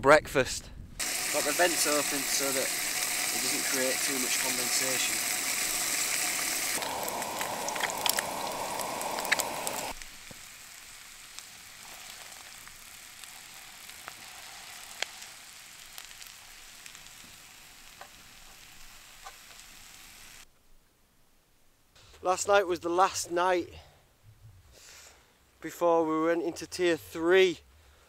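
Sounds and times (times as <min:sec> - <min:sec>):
meat and eggs sizzling in a pan: 0:01.0 - 0:20.5
fat popping: 0:06.7 - 0:09.9.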